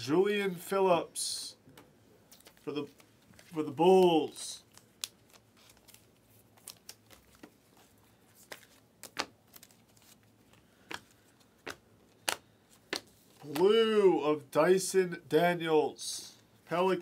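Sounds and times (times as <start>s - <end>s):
cards clicking and snapping: 8.4s - 10.2s, 10.8s - 13.6s.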